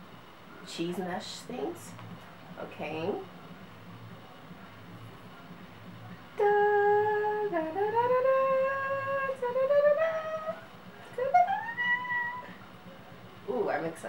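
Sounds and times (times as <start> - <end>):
woman singing ooh notes: 6.4 - 12.6.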